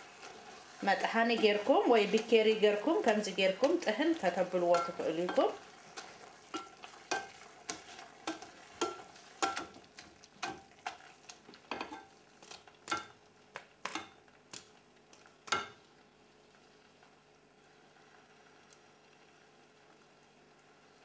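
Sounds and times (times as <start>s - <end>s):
potato masher squishing in pot: 0.0s - 11.7s.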